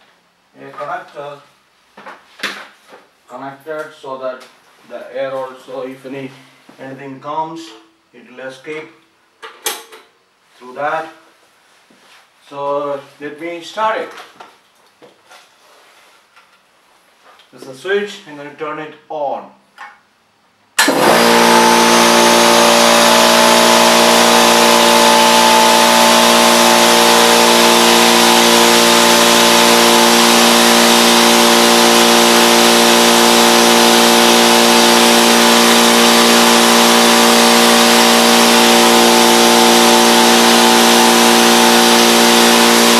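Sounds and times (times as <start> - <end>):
air compressor running: 20.8 - 42.9.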